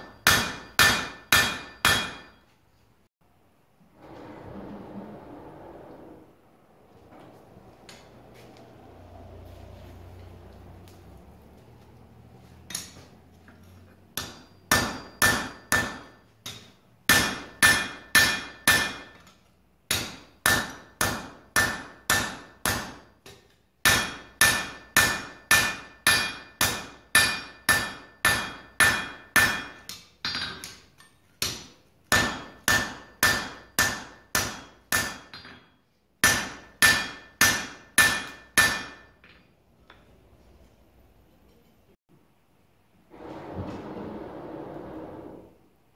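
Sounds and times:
hammer ringing on anvil: 0.0s - 2.5s, 14.2s - 19.2s, 23.9s - 29.8s, 32.1s - 39.3s.

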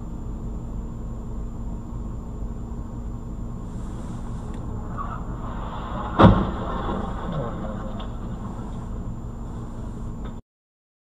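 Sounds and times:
car engine idling: 2.8s - 10.4s.

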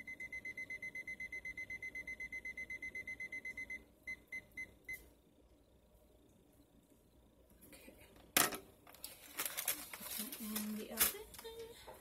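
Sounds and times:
electronic alarm beeping: 0.0s - 5.1s.

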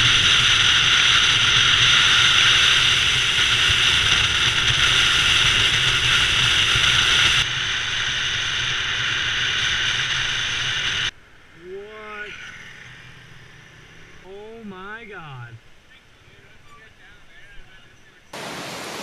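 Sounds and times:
wind rushing over microphone: 0.0s - 11.1s
motorbike engine hum: 0.0s - 19.0s.

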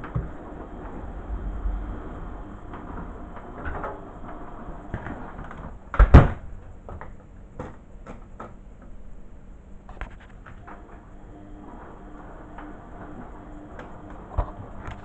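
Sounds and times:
dryer door slamming shut: 2.6s - 6.6s.

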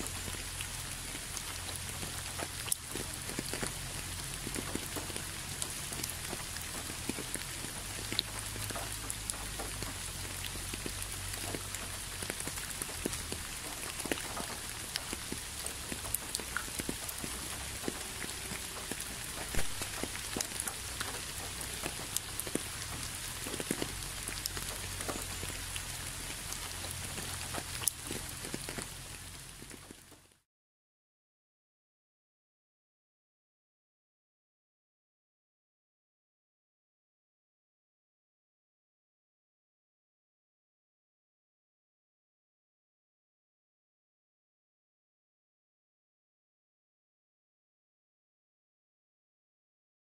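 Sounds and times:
raindrops ticking: 0.0s - 30.4s
steady rain: 0.0s - 30.4s.

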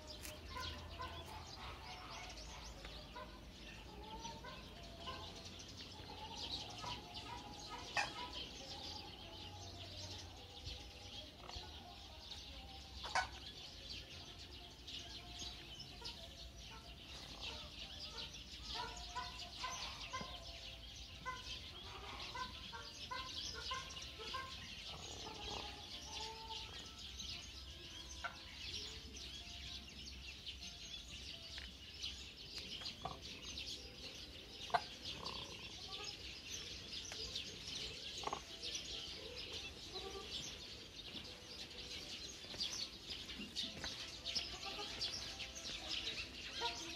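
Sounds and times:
bird clucking calls: 0.0s - 8.7s, 13.0s - 13.4s, 34.6s - 41.3s
birds chirping chorus: 0.0s - 46.9s.

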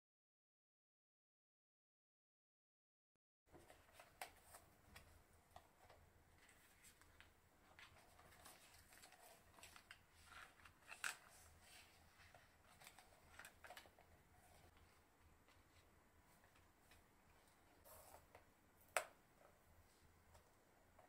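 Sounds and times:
plastic and paper clicks and rustles: 3.5s - 19.6s
faint low room hum: 3.5s - 21.0s.

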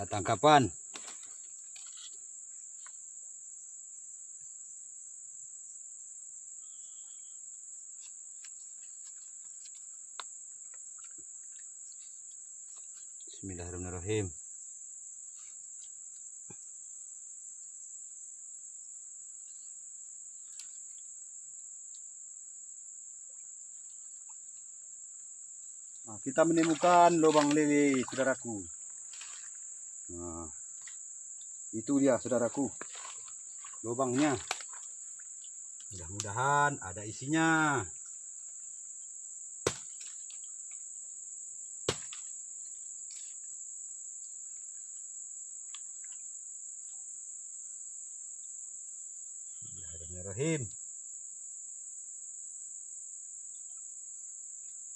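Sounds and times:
shrill insect drone: 0.0s - 54.9s
faint ticks: 45.6s - 47.0s.

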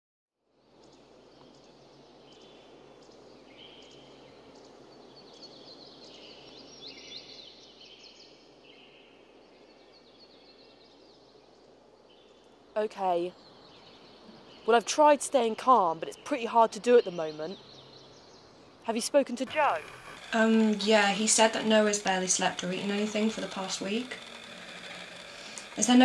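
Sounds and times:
faint background hiss: 0.5s - 22.8s
birds chirping and calling: 13.1s - 26.0s.

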